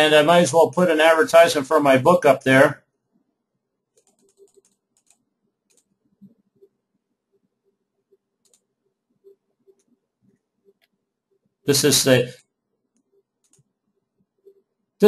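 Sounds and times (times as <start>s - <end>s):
faint computer clicks: 3.9s - 6.7s, 8.4s - 11.0s, 12.4s - 13.7s.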